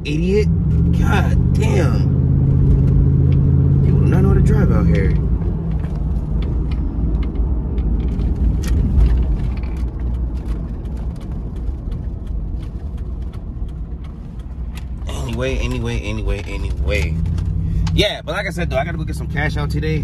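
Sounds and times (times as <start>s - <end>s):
engine and road rumble: 0.0s - 20.0s
small clicks and rattles: 5.8s - 17.6s.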